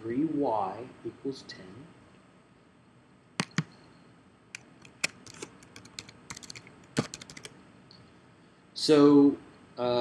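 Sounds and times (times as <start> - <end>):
sharp clicks and taps: 3.4 - 3.7, 4.6 - 7.5.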